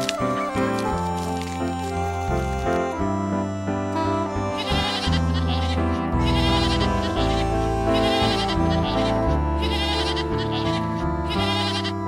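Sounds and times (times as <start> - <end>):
background music: 0.0 - 12.0
goat bleating: 3.9 - 12.0.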